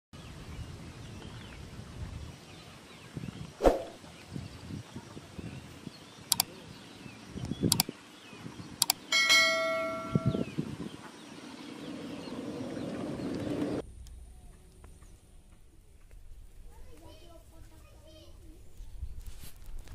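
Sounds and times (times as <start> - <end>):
outdoor background noise: 0.2 - 19.9
mouse clicks: 7.7 - 7.9
bell chime: 9.1 - 10.5.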